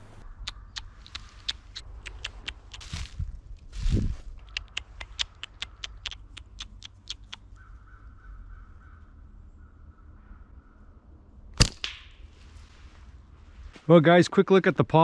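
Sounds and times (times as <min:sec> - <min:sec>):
squirrel alarm chips: 0:00.4 - 0:03.2, 0:04.4 - 0:07.6
squirrel rapid trill: 0:04.4 - 0:07.6.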